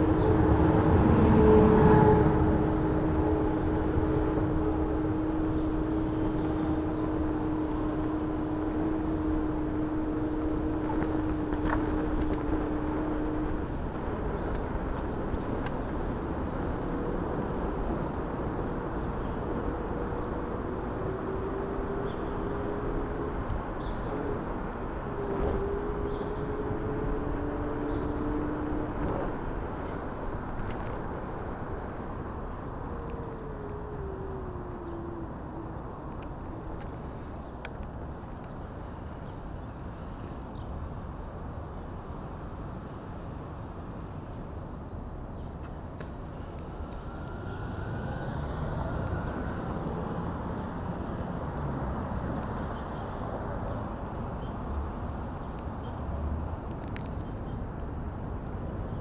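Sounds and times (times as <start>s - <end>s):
rumble of scooter wheels: 0.0s - 39.4s, 45.6s - 51.6s
wind and road noise: 0.0s - 59.0s
faint electric motor whine: 46.0s - 50.6s.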